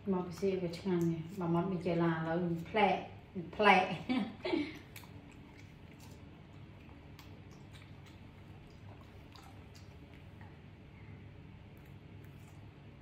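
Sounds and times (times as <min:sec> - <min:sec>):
low room hum: 0:00.0 - 0:13.0
monkey chewing and mouth clicks: 0:04.7 - 0:10.9, 0:11.6 - 0:13.0.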